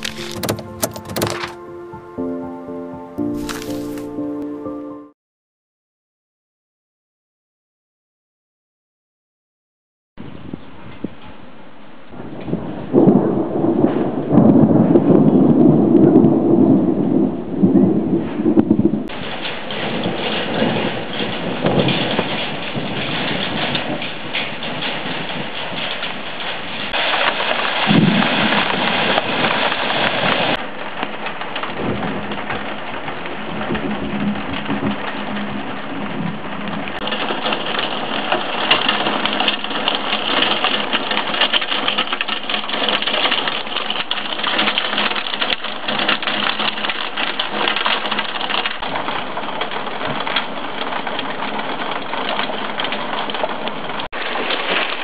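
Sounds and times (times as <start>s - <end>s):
heavy rain pouring: 0.0s - 2.5s, 3.2s - 4.4s, 11.7s - 55.0s
thunder rumbling: 12.2s - 55.0s.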